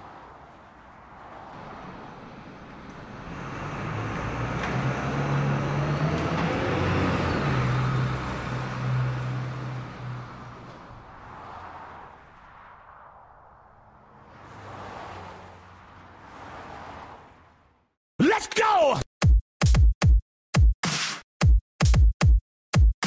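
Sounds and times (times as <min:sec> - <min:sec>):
bus engine hum: 0:00.0 - 0:18.0.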